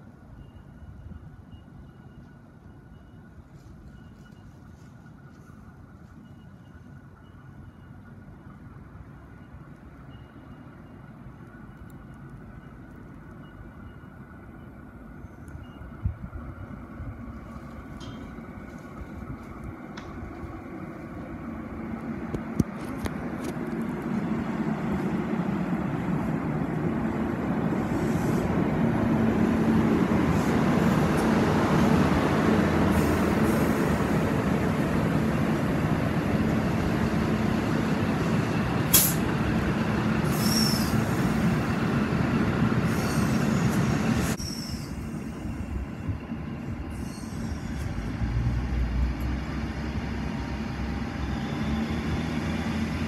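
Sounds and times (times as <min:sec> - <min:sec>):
diesel train engine: 0:00.0 - 0:53.0
train wheels on rails: 0:15.2 - 0:53.0
high wheel squeals: 0:40.2 - 0:41.8, 0:42.8 - 0:48.4.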